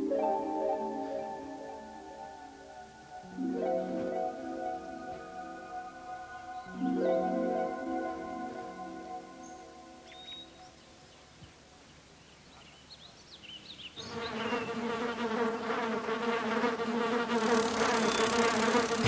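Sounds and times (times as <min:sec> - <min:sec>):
insect buzz: 0:14.0 - 0:19.0.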